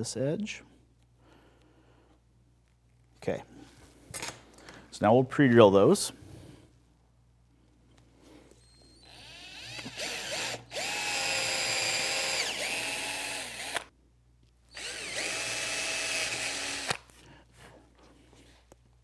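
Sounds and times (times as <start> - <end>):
cordless drill motor whine: 8.6 - 13.9, 14.7 - 17.0.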